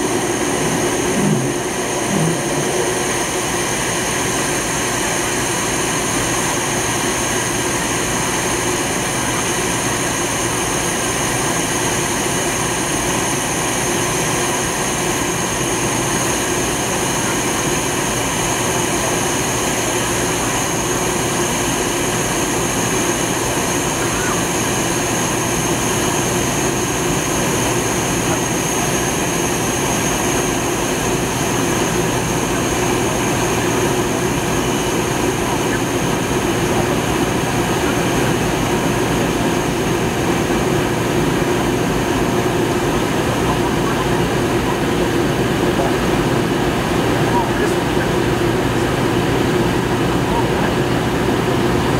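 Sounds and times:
airflow rush: 0.0 - 5.6
jet engine noise: 0.0 - 51.9
steady high whine: 0.0 - 51.9.

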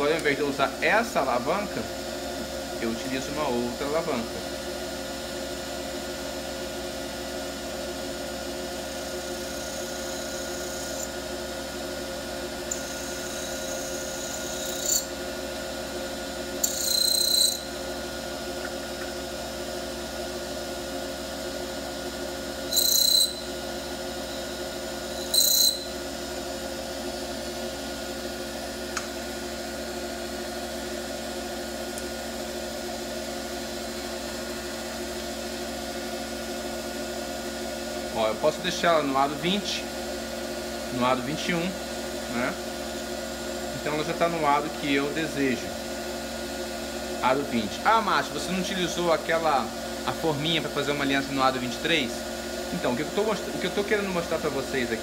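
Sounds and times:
small lathe running: 0.0 - 55.0
cutter screeching on metal: 9.4 - 11.2, 12.7 - 15.1, 16.6 - 17.7, 22.7 - 23.6, 25.1 - 26.0.

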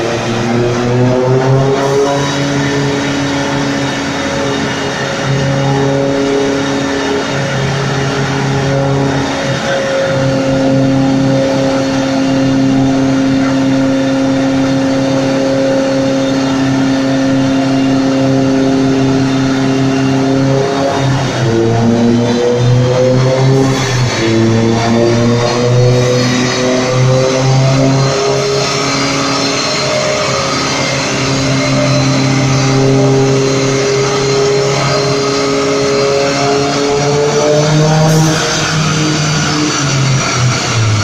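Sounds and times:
turbocharged car engine revving: 0.0 - 41.0.

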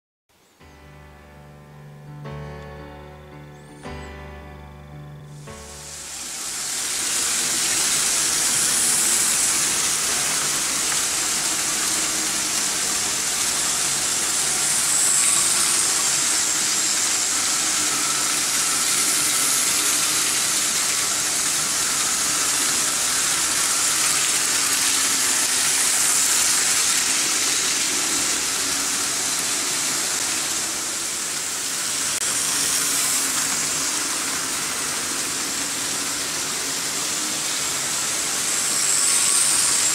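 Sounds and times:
model train wheels rattling on rails: 5.9 - 39.9.

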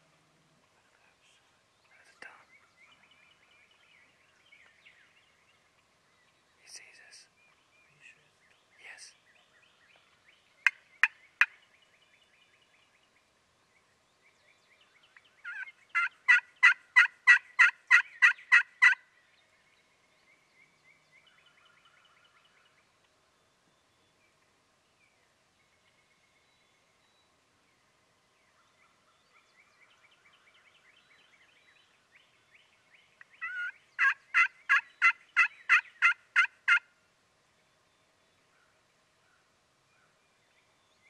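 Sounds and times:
turkey clucking: 15.4 - 19.0, 33.4 - 36.8
turkey yelping: 15.4 - 19.0, 33.4 - 36.8.

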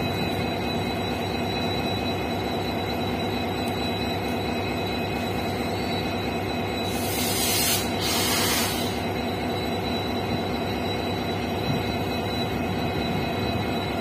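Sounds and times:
diesel locomotive engine drone: 0.0 - 14.0
loud hiss: 6.9 - 9.0.

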